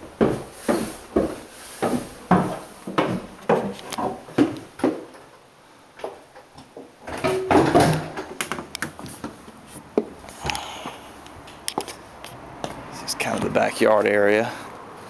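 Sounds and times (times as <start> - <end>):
footsteps: 0.0 - 5.2.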